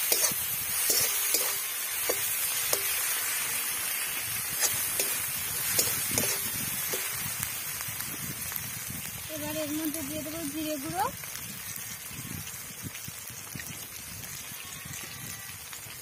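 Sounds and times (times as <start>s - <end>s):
spatula scraping and tapping pan: 0.0s - 3.1s, 4.5s - 7.3s
food sizzling in oil: 0.0s - 16.0s.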